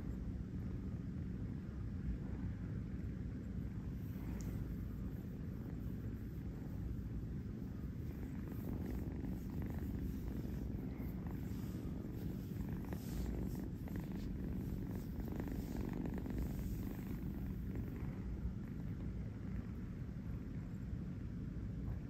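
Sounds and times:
kitten purring: 3.6 - 21.1.

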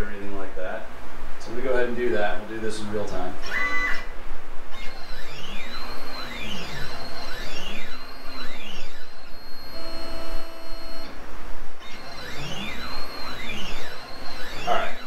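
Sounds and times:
stepper motor whine: 3.4 - 15.0.

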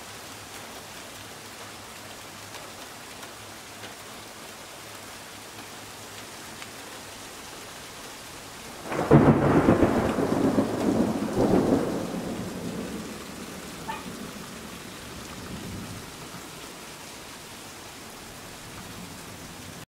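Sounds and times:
heavy rain falling: 0.0 - 19.9
thunder clap rumbling: 8.7 - 16.5.

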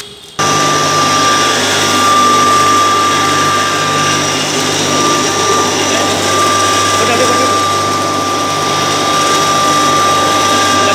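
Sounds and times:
pulverizer whining and humming: 0.0 - 10.9.

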